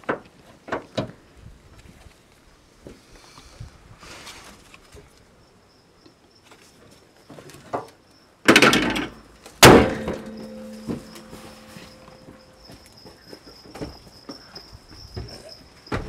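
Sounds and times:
bonnet clattering: 8.5s - 12.5s
car bonnet slamming shut: 9.6s - 12.1s.

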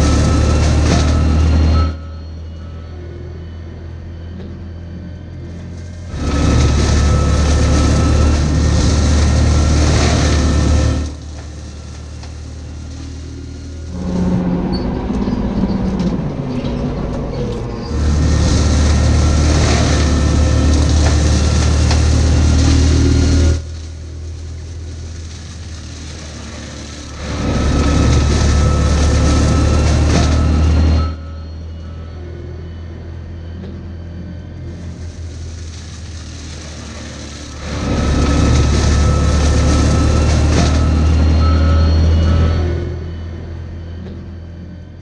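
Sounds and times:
low engine hum: 0.0s - 45.0s
brush mulcher drum chewing wood: 17.9s - 30.4s.

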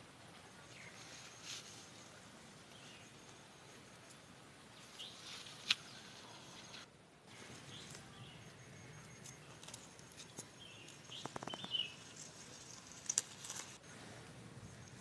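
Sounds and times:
birds chirping: 0.5s - 13.0s
leaves snapping and rustling: 9.2s - 13.8s.

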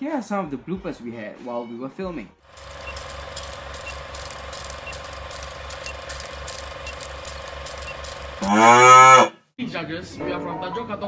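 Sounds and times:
film projector clatter: 2.5s - 8.5s.

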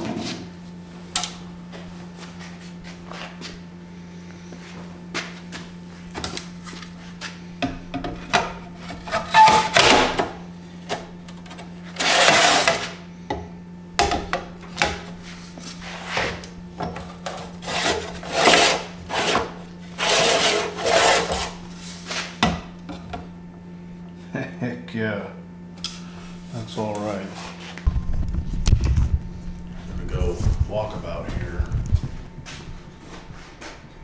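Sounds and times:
low hum: 27.4s - 34.0s.

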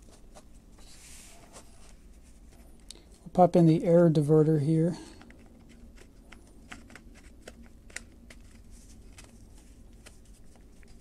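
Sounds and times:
plastic parts clicking and rubbing: 5.2s - 11.0s.

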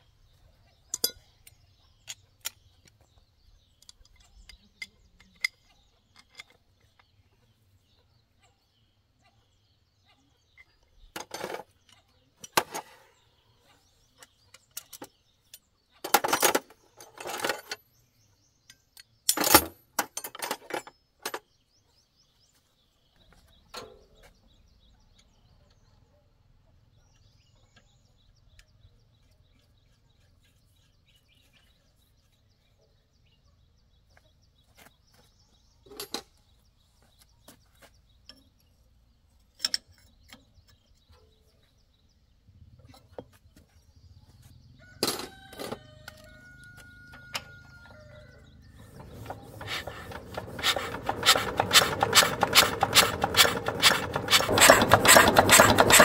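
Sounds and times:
birds chirping faintly: 0.0s - 56.0s
metal hand tools clanking: 0.9s - 1.2s, 49.0s - 56.0s
tools tapping on engine: 48.4s - 56.0s.

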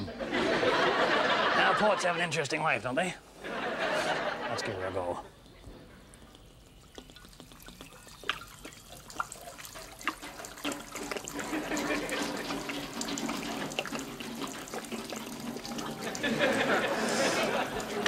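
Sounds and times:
water rushing through cans: 3.7s - 18.0s
water dripping on tin: 4.6s - 18.0s.

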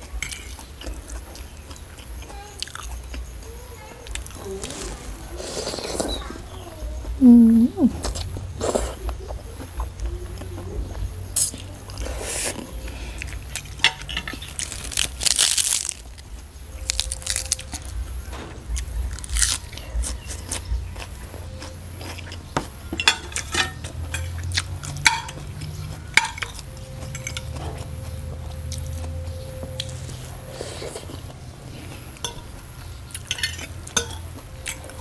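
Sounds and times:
chewing: 0.0s - 35.0s
fork clinking on ceramic plate: 23.0s - 24.4s, 32.2s - 32.6s, 33.2s - 34.2s.

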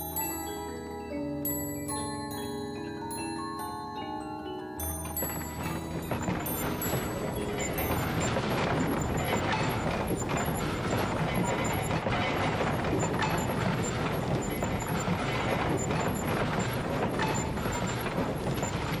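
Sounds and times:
dense noisy din: 6.1s - 19.0s.

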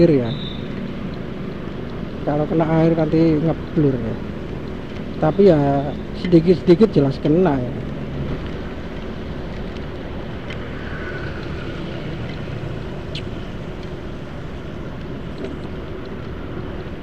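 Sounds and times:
wind rush: 10.0s - 14.2s.

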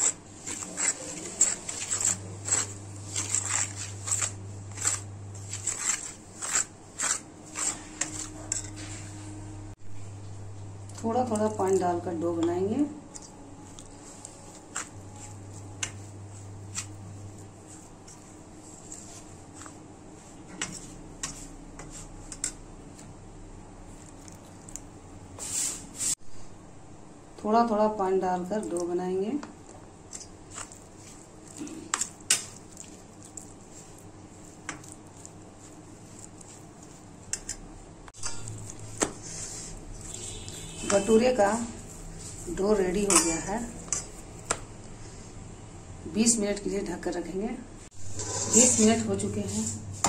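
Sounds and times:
spoon scraping steel bowl: 0.0s - 9.2s, 20.5s - 22.6s, 30.1s - 44.6s, 48.0s - 49.8s
steady low hum: 0.0s - 50.0s
spoon scraping hiss: 38.2s - 44.2s
spoon clinking against bowl: 43.0s - 44.1s.

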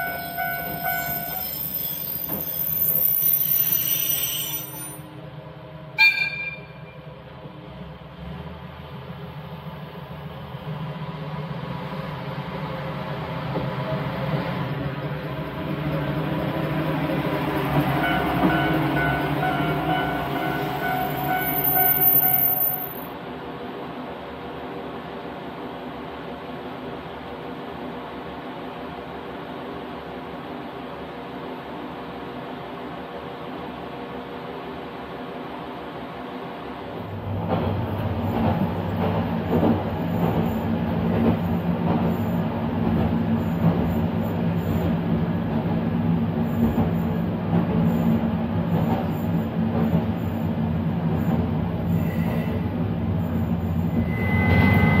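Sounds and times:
diesel railcar passing: 0.0s - 55.0s
wheels rumbling on track: 5.2s - 23.1s, 36.9s - 55.0s.

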